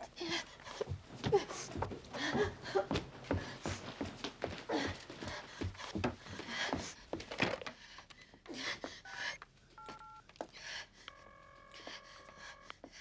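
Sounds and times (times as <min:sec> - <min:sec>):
long steady telephone tone: 0:09.8 - 0:10.3, 0:11.1 - 0:12.9.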